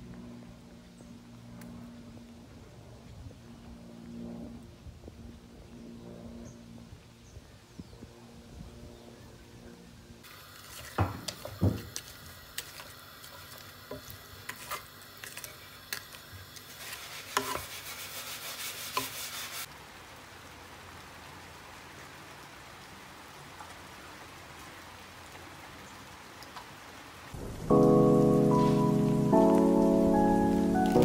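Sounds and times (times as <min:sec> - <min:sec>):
vegetables sizzling in a frying pan: 0:10.3 - 0:19.7
wooden spatula scraping a pan: 0:10.6 - 0:19.7
rain falling: 0:19.6 - 0:31.0.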